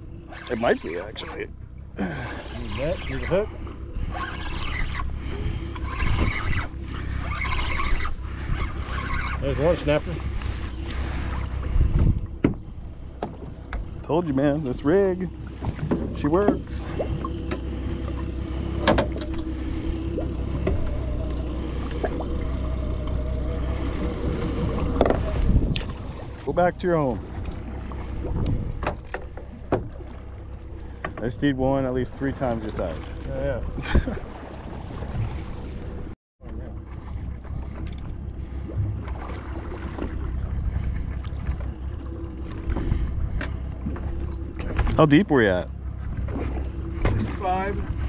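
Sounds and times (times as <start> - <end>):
wind and water rumble: 0.0 - 48.0
wind on microphone: 2.6 - 13.8, 23.2 - 29.0.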